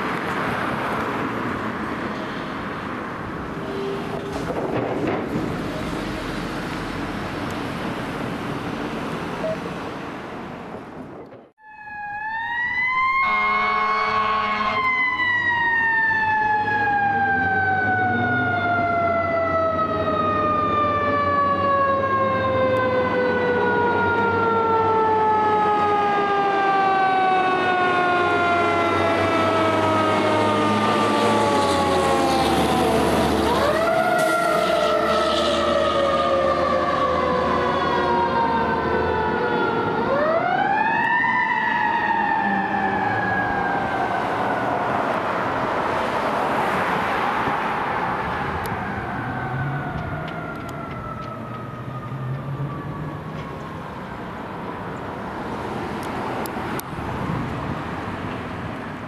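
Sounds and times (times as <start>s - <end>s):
fire engine siren: 0.0s - 9.8s, 11.6s - 59.0s
road noise rush: 0.0s - 59.0s
fire engine horn: 3.5s - 4.5s, 11.6s - 44.3s.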